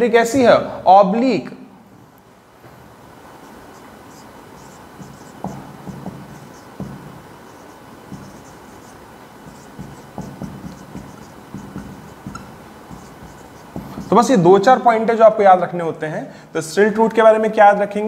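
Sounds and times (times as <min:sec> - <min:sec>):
marker scratching on whiteboard: 0:03.4 - 0:14.3.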